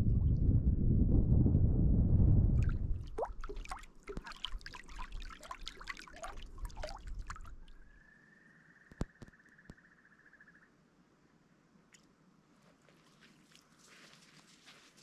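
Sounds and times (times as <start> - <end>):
wind buffeting the microphone: 0.0 - 4.8, 6.4 - 7.8
small clicks and plops: 2.6 - 7.8
small waves lapping among stones: 3.1 - 7.9.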